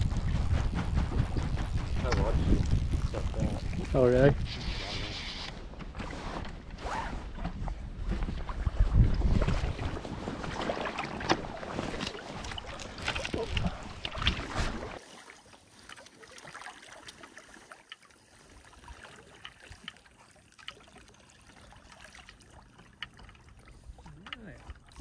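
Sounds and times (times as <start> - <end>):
wind on microphone: 0.0 - 5.4, 7.6 - 10.5
water lapping: 0.0 - 25.0
water sloshing and splashing: 0.0 - 25.0.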